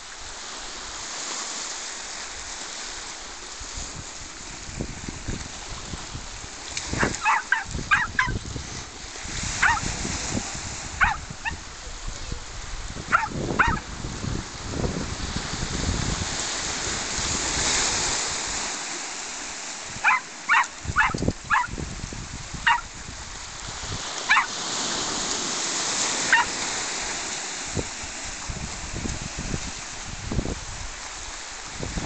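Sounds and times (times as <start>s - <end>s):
waves washing over shingle: 0.0s - 32.0s
small dog yapping: 7.0s - 8.4s, 9.6s - 9.8s, 11.0s - 11.6s, 13.1s - 13.8s, 20.0s - 21.8s, 22.7s - 22.9s, 24.3s - 24.6s, 26.3s - 26.6s.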